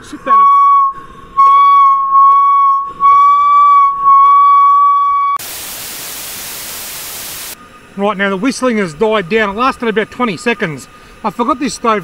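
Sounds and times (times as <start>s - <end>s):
camp stove whistling: 0.2s - 5.4s
steady static hiss: 5.4s - 12.0s.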